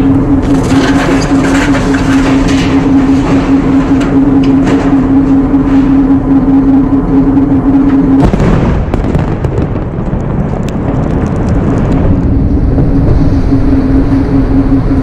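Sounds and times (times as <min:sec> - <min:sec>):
rumbling: 0:00.0 - 0:15.0
steady low hum: 0:00.0 - 0:15.0
munition explosion: 0:08.2 - 0:11.0.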